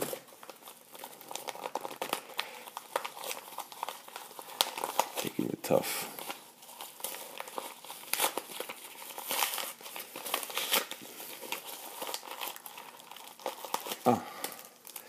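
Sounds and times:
plastic wrapping crinkling: 0:00.0 - 0:15.0.

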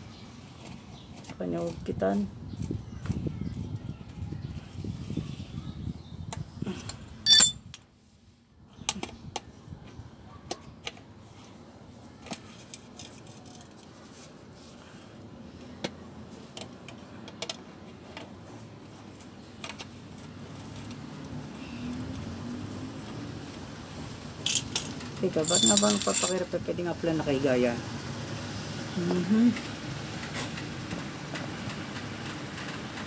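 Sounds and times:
loud ringing tool clink: 0:07.3 - 0:07.6, 0:24.5 - 0:26.4
wrench clicking on metal: 0:07.3 - 0:07.6, 0:24.5 - 0:26.4.

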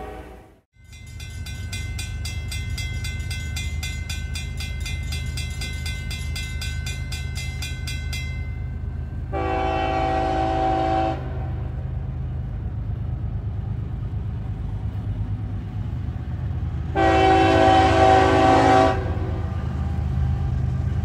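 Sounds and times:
train air horn: 0:00.0 - 0:00.6, 0:09.3 - 0:11.7, 0:16.9 - 0:19.6
freight train rumble: 0:00.0 - 0:21.0
crossing warning bell ringing: 0:00.8 - 0:10.2.

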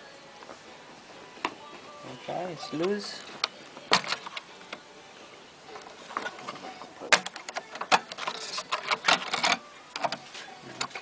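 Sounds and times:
clicks and rattles of display board: 0:06.1 - 0:10.2.

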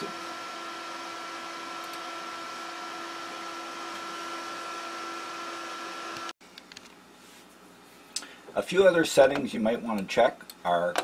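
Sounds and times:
computer equipment humming: 0:00.0 - 0:06.7.

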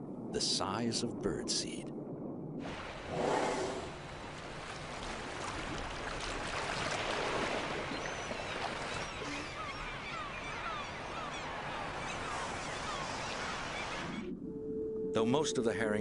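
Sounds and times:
whale blowing: 0:02.6 - 0:04.1
water washing: 0:02.6 - 0:14.2
gulls calling: 0:06.6 - 0:14.4.

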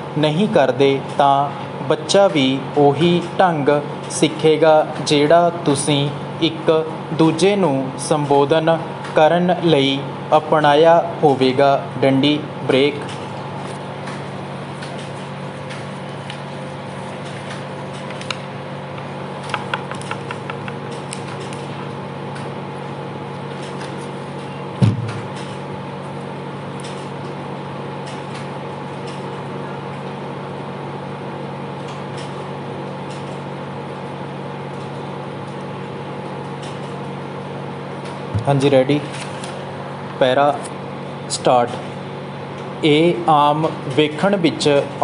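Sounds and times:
loud thump: 0:24.8 - 0:25.3, 0:38.3 - 0:38.5.

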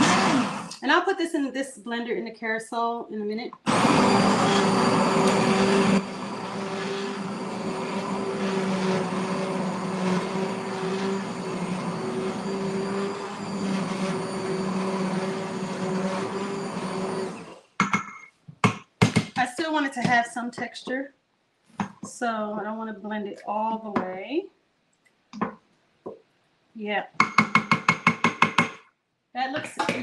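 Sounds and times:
immersion blender whirring in soup: 0:00.0 - 0:00.8, 0:03.7 - 0:17.7.

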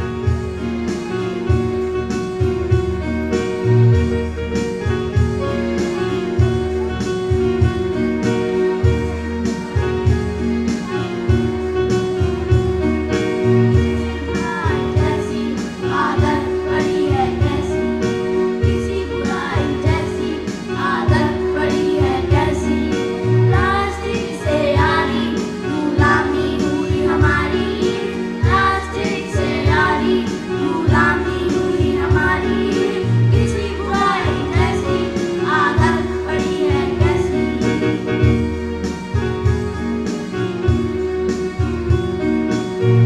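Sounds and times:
instrumental backing music: 0:00.0 - 0:43.0
children singing in unison: 0:18.8 - 0:37.5.

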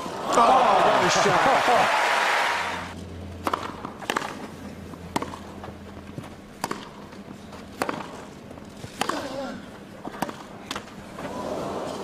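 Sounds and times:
tennis racket hitting ball: 0:03.4 - 0:04.5, 0:05.1 - 0:05.6, 0:06.6 - 0:07.1, 0:07.7 - 0:08.3, 0:08.9 - 0:11.0
tennis ball bouncing: 0:03.4 - 0:09.4, 0:10.0 - 0:11.0.

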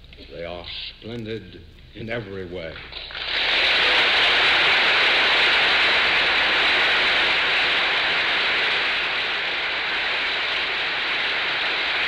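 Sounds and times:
large audience clapping: 0:03.1 - 0:12.0.

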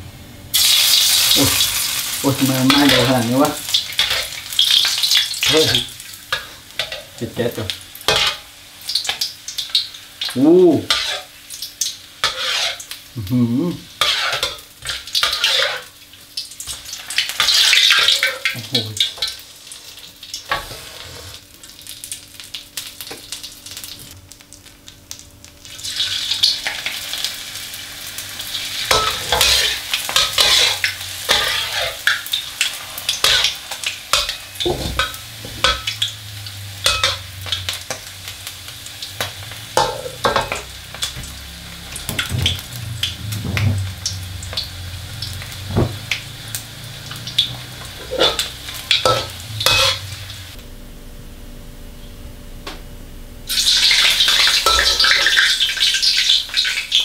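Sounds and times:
deep-frying sizzle: 0:00.0 - 0:57.0
tongs and ladle scraping a wok: 0:04.0 - 0:07.1, 0:08.1 - 0:08.5, 0:10.8 - 0:11.3, 0:12.2 - 0:13.0, 0:14.0 - 0:16.0, 0:16.7 - 0:21.4, 0:28.8 - 0:36.1, 0:36.8 - 0:38.0, 0:47.1 - 0:50.2, 0:54.2 - 0:55.4.

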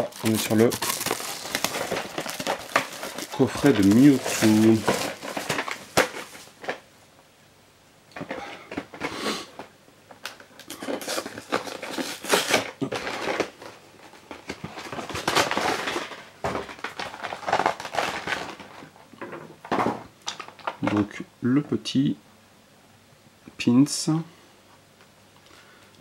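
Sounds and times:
plastic wrap and cardboard crinkling: 0:00.0 - 0:06.9, 0:08.6 - 0:19.0, 0:19.6 - 0:21.0.

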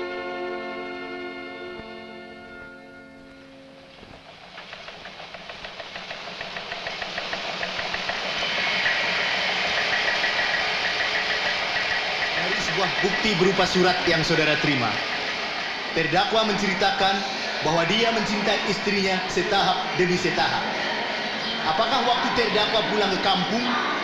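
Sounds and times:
held orchestral chords: 0:00.0 - 0:04.4
textile mill machinery clatter: 0:04.2 - 0:23.7.

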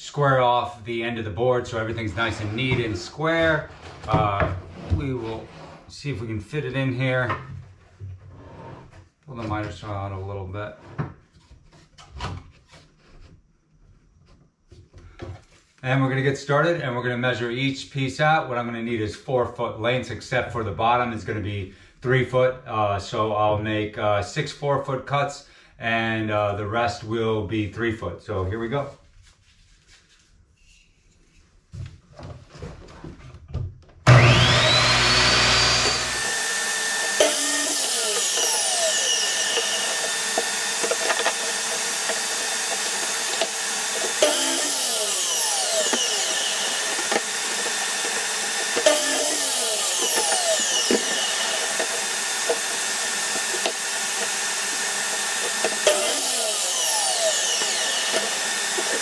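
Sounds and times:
miter saw cutting wood: 0:34.1 - 0:59.0
shop vacuum running: 0:34.1 - 0:59.0.

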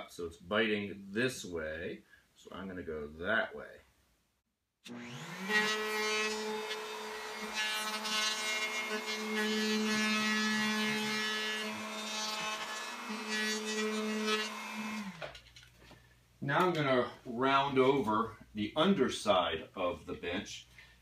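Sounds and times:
electric router running: 0:04.9 - 0:09.3
router bit cutting wood: 0:04.9 - 0:15.4.

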